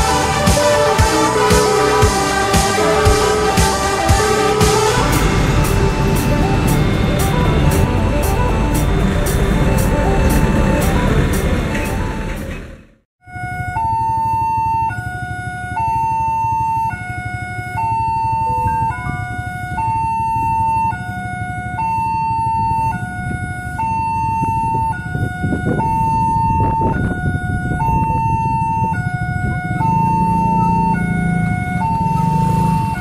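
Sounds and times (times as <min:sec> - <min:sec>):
two-tone warning siren: 0:00.0 - 0:12.6, 0:13.2 - 0:33.0
motorcycle engines idling: 0:00.0 - 0:13.0.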